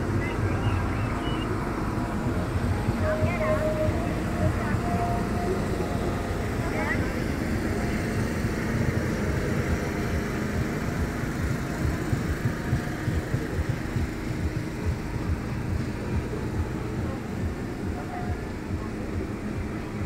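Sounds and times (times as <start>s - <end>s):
engines rumbling: 0.0s - 20.0s.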